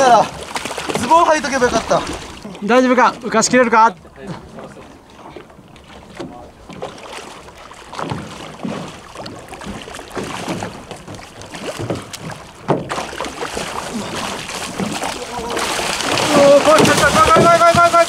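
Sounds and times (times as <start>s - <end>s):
water splashing against boat hull: 0.0s - 18.0s
shark thrashing in water: 6.9s - 18.0s.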